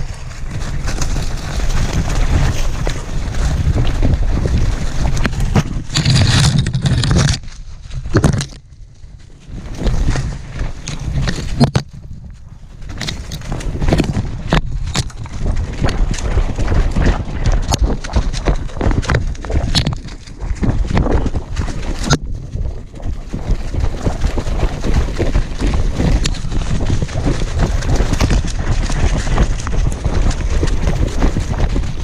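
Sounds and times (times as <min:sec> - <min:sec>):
wind buffeting microphone: 0:00.0 - 0:32.0
twigs snapping: 0:12.8 - 0:22.2.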